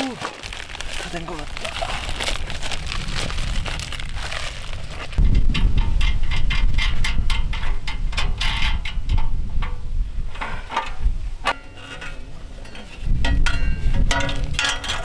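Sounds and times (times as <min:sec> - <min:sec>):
low rumble: 0:00.4 - 0:08.2
metal parts clicking and clanking: 0:05.4 - 0:15.0.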